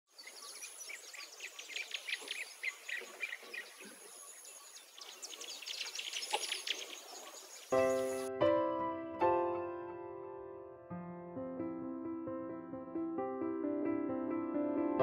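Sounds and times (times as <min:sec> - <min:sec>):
birds chirping: 0:00.1 - 0:08.3.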